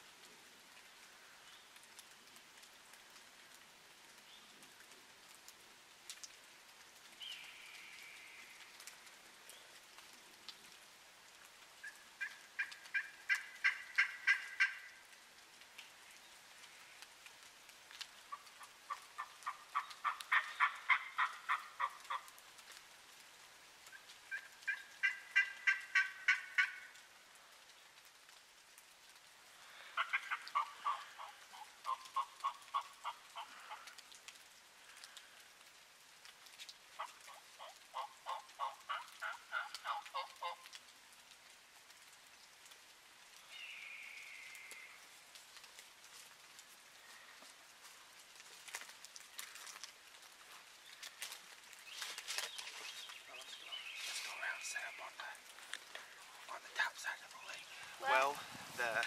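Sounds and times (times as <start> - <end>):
turkey yelping: 12.2 - 14.9, 18.3 - 22.2, 24.3 - 26.8, 30.0 - 33.8, 37.0 - 40.6.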